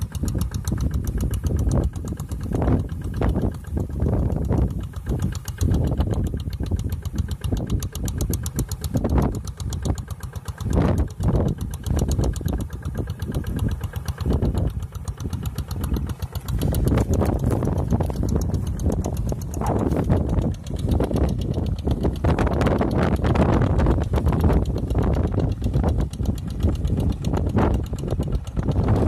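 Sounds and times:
distant diesel engine running: 0.0s - 29.0s
wind rumbling on microphone: 0.0s - 29.0s.

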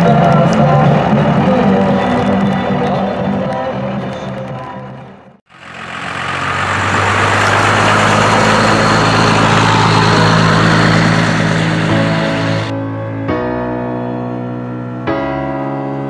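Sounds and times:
diesel truck driving past: 5.5s - 12.7s.

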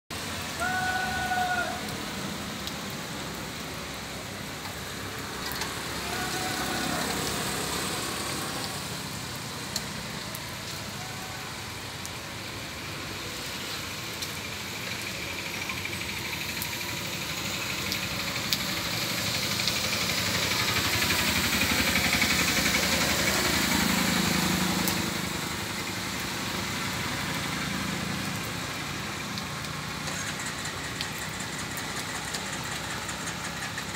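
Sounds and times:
rain hissing: 0.1s - 33.9s
traffic on wet road: 0.1s - 33.9s.

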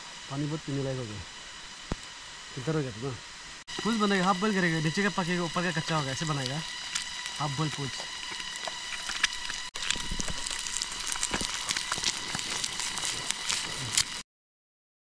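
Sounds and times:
faint steady high hum: 0.0s - 14.2s
egg sizzling in oil: 3.6s - 14.2s.

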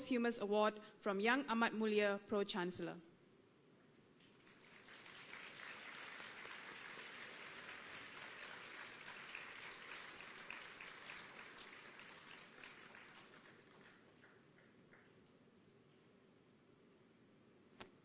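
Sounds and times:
faint audience applause: 4.2s - 15.4s.

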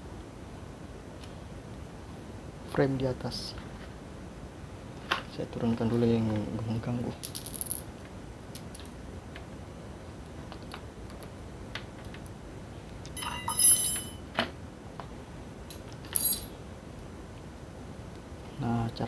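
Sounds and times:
metallic jingle: 13.2s - 14.2s, 16.2s - 16.5s.

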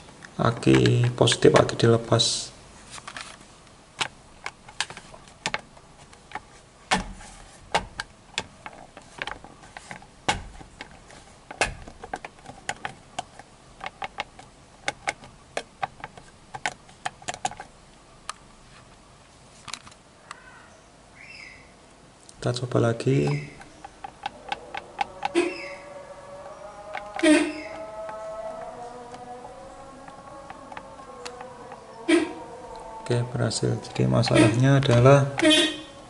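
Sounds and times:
plastic horn pad clicks: 4.0s - 17.7s, 23.2s - 25.5s, 26.9s - 31.8s.

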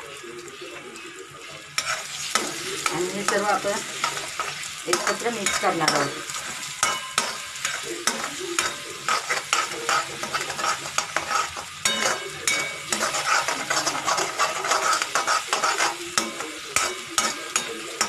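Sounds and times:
food sizzling in oil: 0.0s - 18.0s
spatula scraping steel wok: 1.4s - 18.0s.

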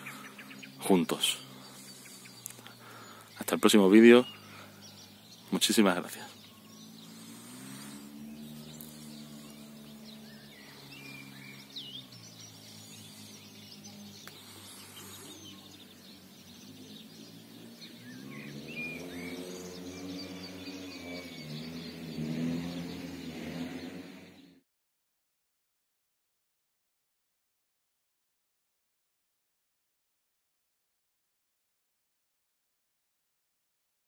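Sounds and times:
birds chirping: 0.0s - 24.6s.

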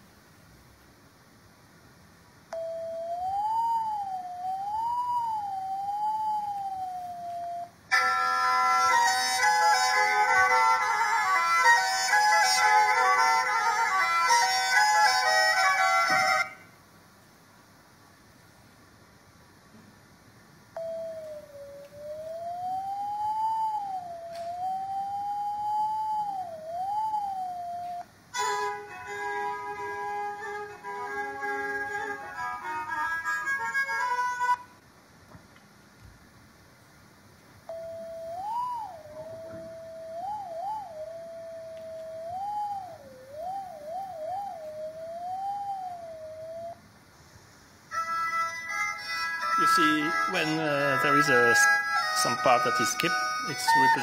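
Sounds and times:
folk music recording: 7.9s - 16.6s, 28.4s - 34.6s, 47.9s - 54.0s.

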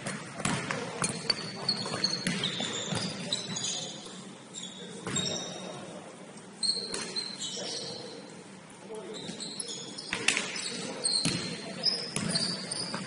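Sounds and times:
basketball bouncing: 0.0s - 1.1s, 1.9s - 3.1s, 11.2s - 11.5s, 12.2s - 13.0s
sneakers squeaking on court: 0.0s - 5.9s, 6.6s - 8.3s, 9.1s - 13.0s.

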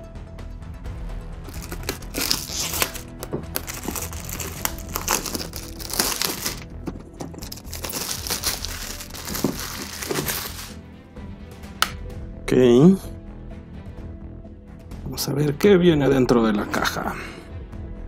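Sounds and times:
plastic wrap crinkling and tearing: 1.5s - 10.8s.

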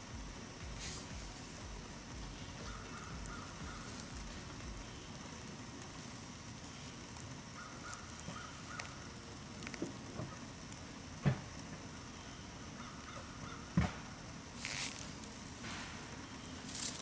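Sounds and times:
faint bird calls: 0.1s - 5.4s, 6.6s - 10.4s, 11.9s - 14.0s
hand digging in leaves and soil: 0.4s - 9.9s, 14.6s - 17.0s
thump: 13.8s - 14.0s.

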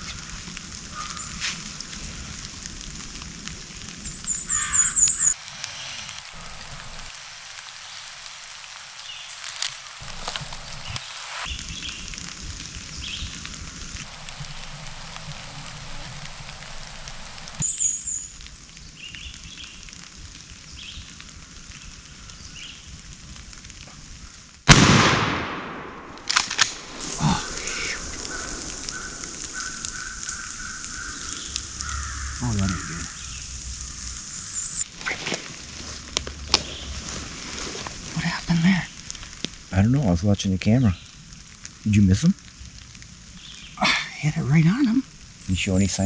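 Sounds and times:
faint steady hiss: 0.0s - 46.0s
shotgun shot echoing: 24.7s - 28.7s
sharp clicks: 24.7s - 31.9s
harsh bird call: 27.0s - 34.6s.

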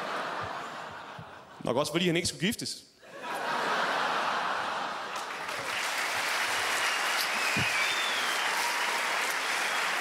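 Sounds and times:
audience applauding: 4.9s - 10.0s.

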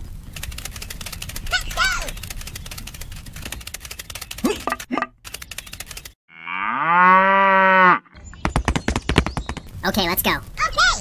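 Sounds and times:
wood fire crackling: 0.0s - 4.4s
cow mooing: 6.3s - 8.1s.

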